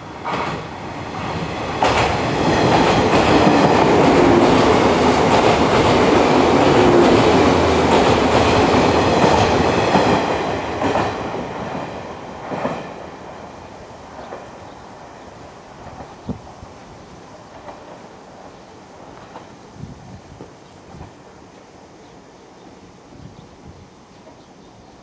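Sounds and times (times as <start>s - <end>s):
train wheel and rail rush: 0.0s - 25.0s
wheels clacking over rail joints: 1.8s - 13.0s.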